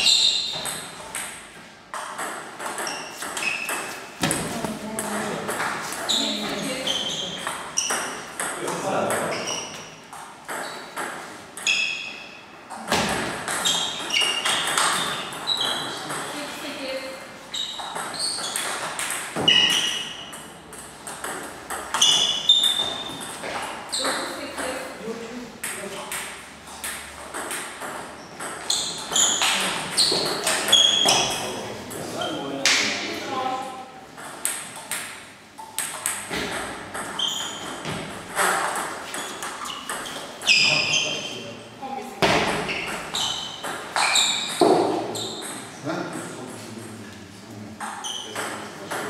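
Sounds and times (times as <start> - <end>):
short high squeak: 0.0 - 0.7, 17.5 - 18.7, 39.1 - 41.4, 42.7 - 45.5
table tennis ball hits: 0.0 - 9.5, 10.1 - 12.0, 12.7 - 16.4, 17.8 - 24.8, 25.6 - 31.4, 34.1 - 40.3, 42.2 - 45.7.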